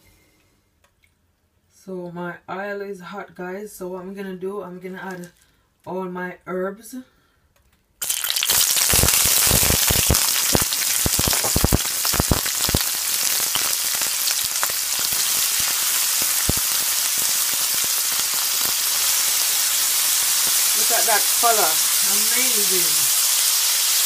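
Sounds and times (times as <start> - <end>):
vegetables sizzling in hot oil: 8.0 - 24.0.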